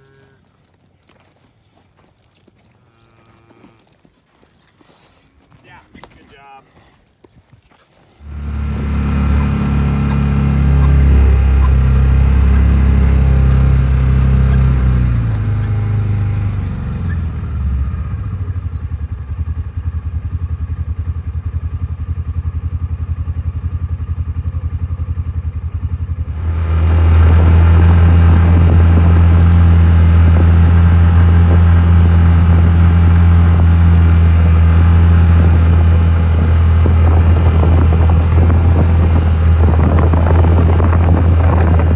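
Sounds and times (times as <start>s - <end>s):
vehicle engine running: 8.2s - 41.9s.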